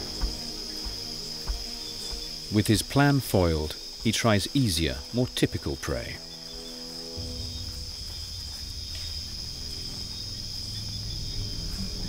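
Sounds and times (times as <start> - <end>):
insect chorus drone: 0.0 - 12.0
low rumble: 7.2 - 12.0.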